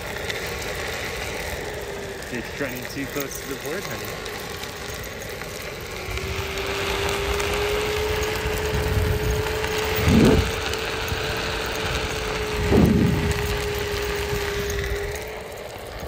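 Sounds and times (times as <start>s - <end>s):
electric motor whining: 0.0s - 16.0s
wind buffeting microphone: 5.9s - 15.3s.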